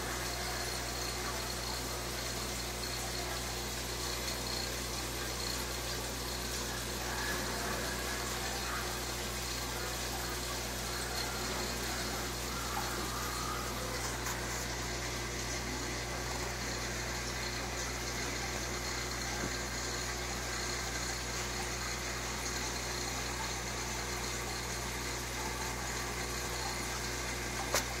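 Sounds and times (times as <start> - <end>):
aquarium pump humming and hissing: 0.0 - 28.0.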